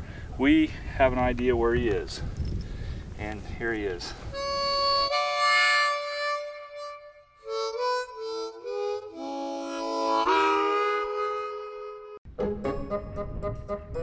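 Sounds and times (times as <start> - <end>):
harmonica playing: 4.3 - 14.0.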